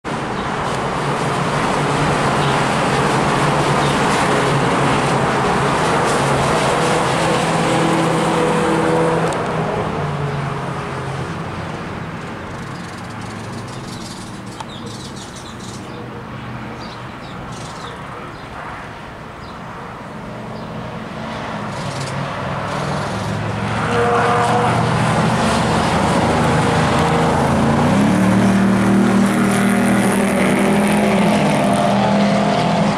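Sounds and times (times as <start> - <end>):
racing car engines passing: 0.1 - 19.1, 20.2 - 32.9.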